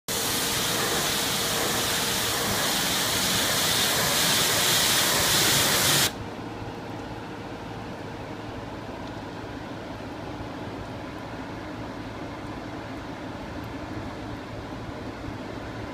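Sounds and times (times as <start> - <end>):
pressure washer spraying water: 0.1 - 6.2.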